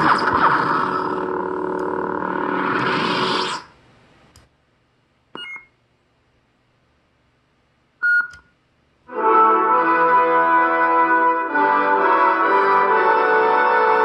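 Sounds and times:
lightsaber retraction sound: 0.0 - 3.8
short electronic beeps: 5.4 - 5.7, 8.0 - 8.4.

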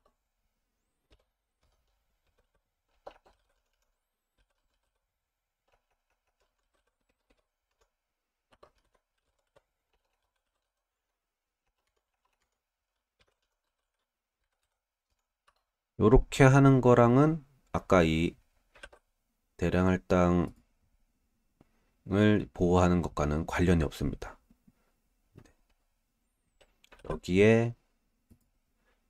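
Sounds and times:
typing on computer keyboard: 1.0 - 15.8, 18.7 - 19.0.

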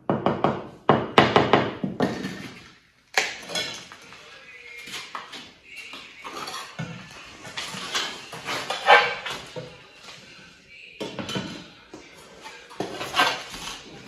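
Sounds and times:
tiles and tools clinking: 2.0 - 10.2, 11.0 - 14.0.

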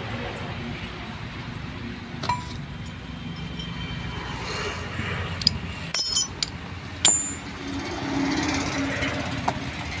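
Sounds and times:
metal gear parts clinking: 5.4 - 7.6.

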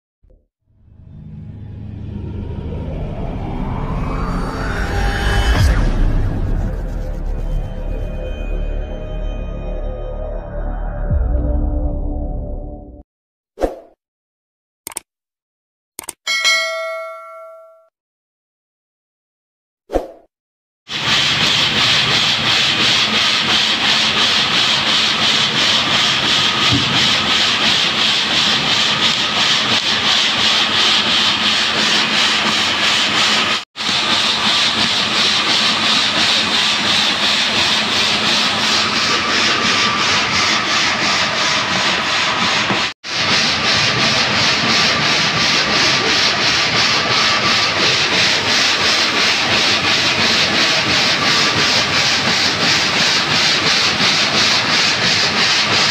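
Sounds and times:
stone-cutting saw running: 20.9 - 55.9.

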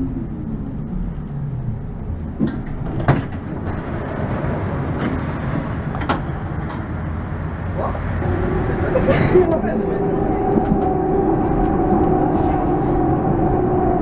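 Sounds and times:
tram rumbling on rails: 0.0 - 14.0
sharp clicks and knocks: 5.0 - 6.9.

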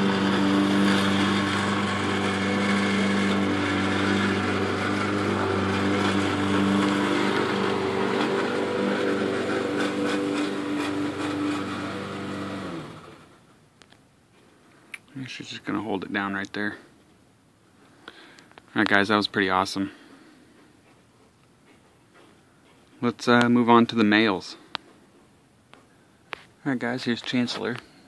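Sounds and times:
lawn mower engine running: 0.0 - 13.4.

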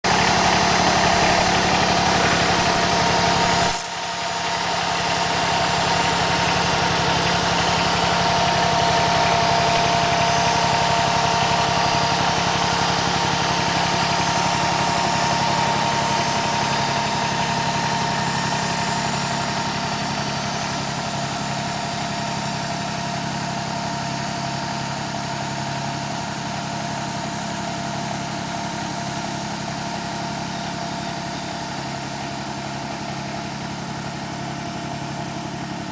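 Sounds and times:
steady whine: 0.0 - 22.3
tractor diesel engine running: 0.0 - 35.9.

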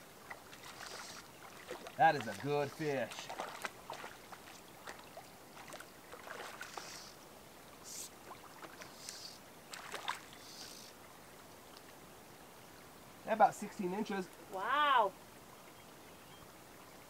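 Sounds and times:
fish splashing in water: 0.3 - 7.1, 8.3 - 10.9.

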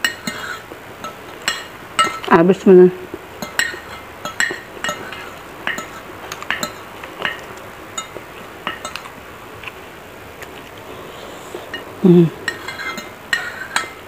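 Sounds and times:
cutlery clinking on ceramic plate: 0.0 - 2.3, 3.4 - 9.1, 11.7 - 14.0.

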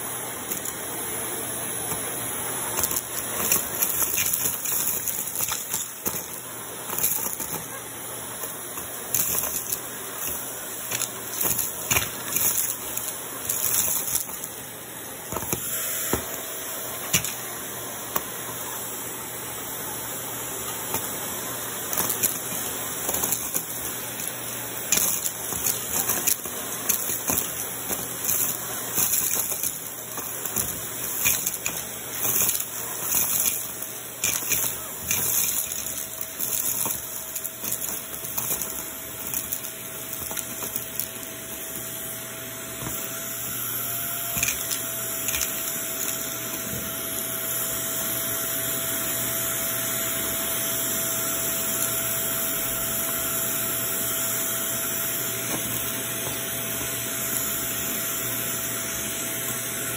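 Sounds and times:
vacuum cleaner running: 0.0 - 59.9
beads clicking up vacuum wand: 0.3 - 1.0, 1.6 - 14.6, 17.0 - 17.5, 20.8 - 41.9, 42.8 - 46.7.

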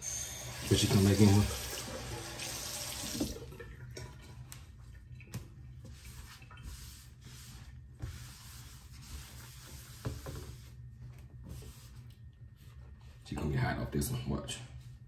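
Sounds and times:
running water hiss: 0.0 - 3.4
room hum: 0.0 - 15.0.

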